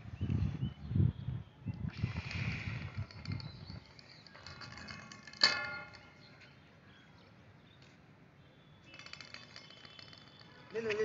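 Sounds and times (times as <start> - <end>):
metallic clang of steel rods: 4.5 - 6.3.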